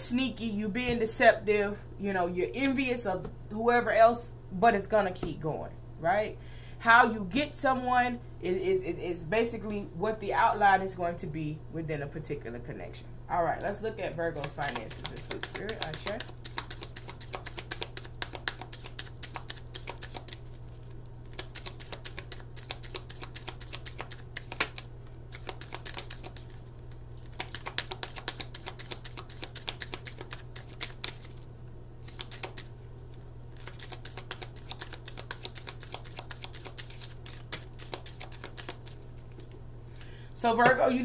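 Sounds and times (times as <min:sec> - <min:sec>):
cards being shuffled: 0:14.3 - 0:39.6.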